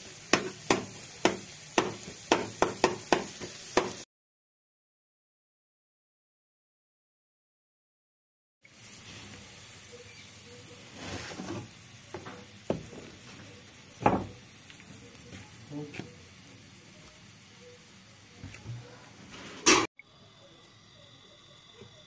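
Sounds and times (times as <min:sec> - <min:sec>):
meat and egg sizzling in oil: 0:00.0 - 0:04.1, 0:08.6 - 0:22.0
spatula knocking and scraping pan: 0:00.2 - 0:04.0, 0:11.1 - 0:13.4.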